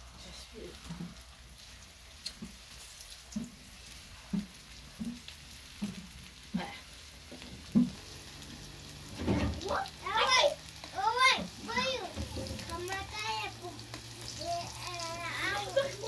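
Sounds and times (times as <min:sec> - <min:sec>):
potatoes sizzling in oil: 0:00.0 - 0:16.0
stirring knocks: 0:03.3 - 0:08.0, 0:11.0 - 0:13.8.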